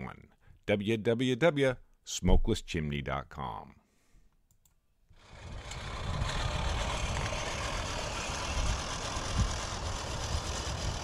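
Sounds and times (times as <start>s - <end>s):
lawn mower engine running: 5.2s - 11.0s.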